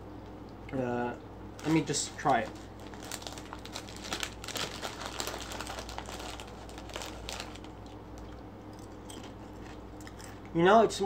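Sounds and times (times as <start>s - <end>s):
chip bag crinkling: 1.6s - 10.2s
chips crunching: 1.6s - 10.4s.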